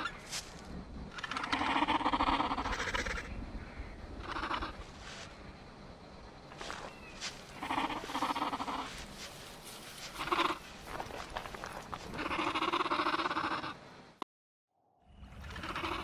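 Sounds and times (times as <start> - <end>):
dinosaur calls: 15.4 - 16.0.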